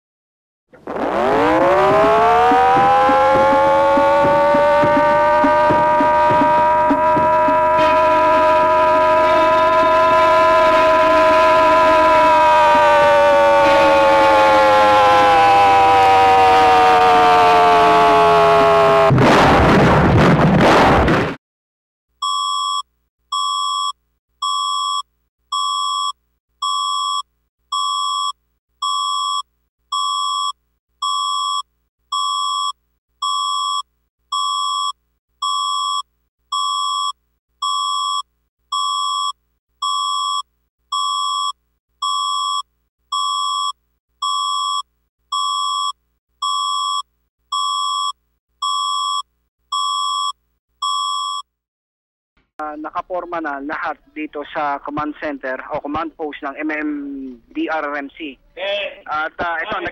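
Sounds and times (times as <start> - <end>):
electronic alarm beeps: 22.2 - 51.5.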